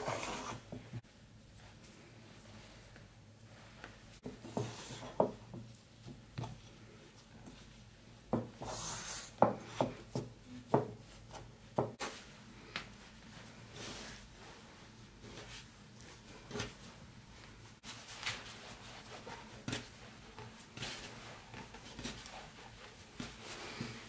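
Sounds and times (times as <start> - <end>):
hands rubbing dough: 11.0 - 24.0.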